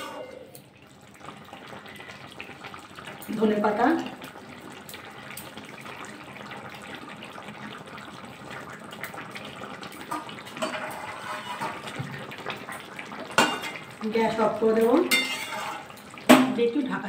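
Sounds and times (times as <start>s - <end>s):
spatula scraping a pan: 0.0s - 0.5s, 10.1s - 12.0s, 15.1s - 16.0s
curry bubbling and hissing: 0.0s - 17.0s.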